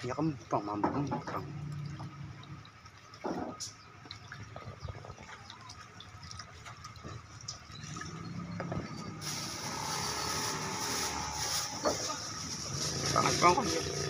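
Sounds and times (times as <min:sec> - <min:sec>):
water splashing in a bowl: 0:00.0 - 0:14.0
steady hiss: 0:09.1 - 0:14.0.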